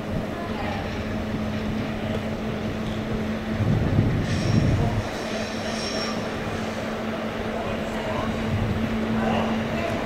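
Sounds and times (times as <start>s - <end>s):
rumble of train wheels: 0.0s - 10.0s
train low hum: 0.0s - 10.0s
thin high squeal: 4.2s - 6.8s.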